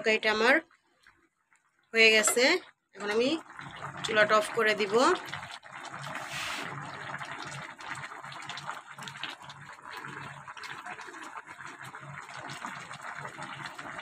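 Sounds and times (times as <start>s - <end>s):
curry bubbling in a pot: 0.1s - 14.0s.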